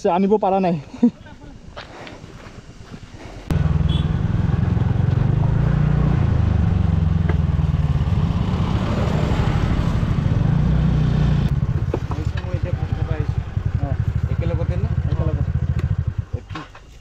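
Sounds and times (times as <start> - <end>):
scooter engine running: 3.5 - 16.4.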